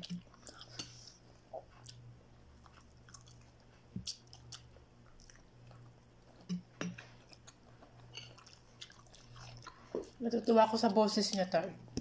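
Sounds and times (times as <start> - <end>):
chewing and mouth sounds: 0.0 - 10.2.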